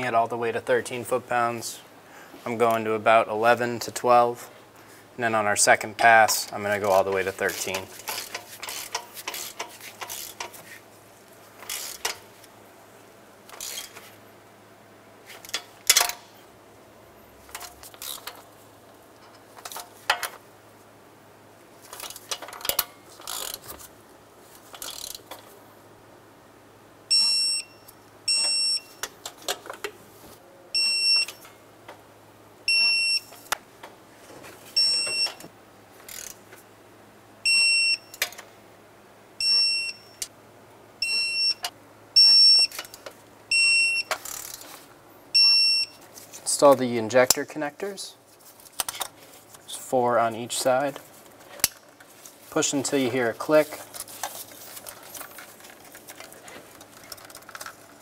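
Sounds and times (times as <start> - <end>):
ratchet clicking: 7.5 - 10.6, 11.6 - 12.2, 13.5 - 14.0, 21.9 - 23.6, 24.7 - 25.4, 44.2 - 44.6
torque wrench short beeps: 27.1 - 29.0, 32.7 - 33.4, 34.8 - 35.4, 39.4 - 40.3, 41.0 - 42.9, 43.5 - 44.4, 45.4 - 46.0.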